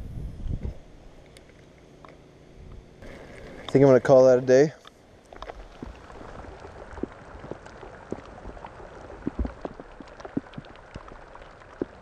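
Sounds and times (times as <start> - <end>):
raindrops plinking on pond: 5.2 - 12.0.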